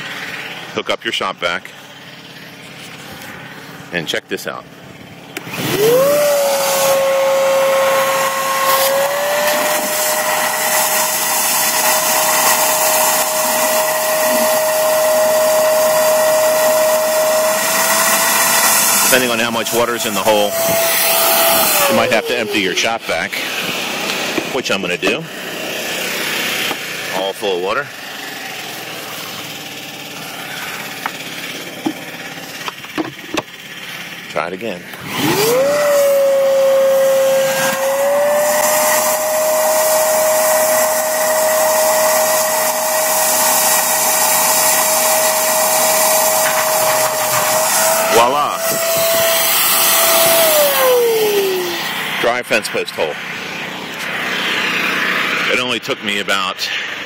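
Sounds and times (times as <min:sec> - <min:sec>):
generator engine running: 0:00.0 - 0:57.0
shop vacuum sucking water: 0:00.0 - 0:57.0
plastic clunks and knocks: 0:32.7 - 0:33.5.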